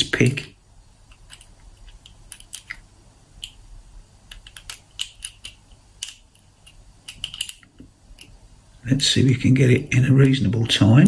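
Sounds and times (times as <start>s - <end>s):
lock pick clicking and scraping: 1.1s - 2.8s, 4.3s - 8.4s.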